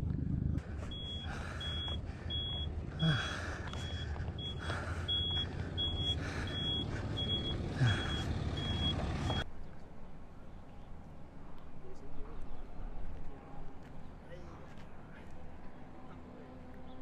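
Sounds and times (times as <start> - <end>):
engine rumbling: 0.0 - 11.3
vehicle reversing beeper: 0.8 - 9.4.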